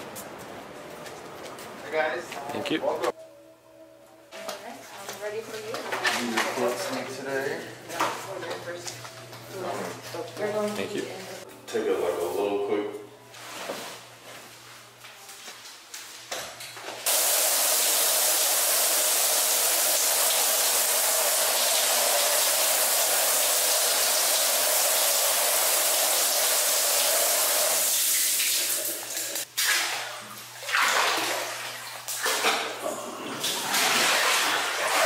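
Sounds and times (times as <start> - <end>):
shower spray running: 17.1 - 29.5
water splashing: 28.1 - 32.7, 33.3 - 35.0.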